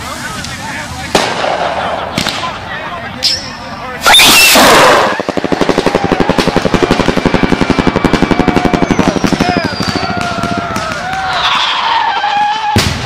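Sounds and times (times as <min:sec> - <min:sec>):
firework launch rush: 0:00.0 - 0:02.7, 0:04.0 - 0:13.0
rapid rattle of firework pops: 0:05.1 - 0:11.4.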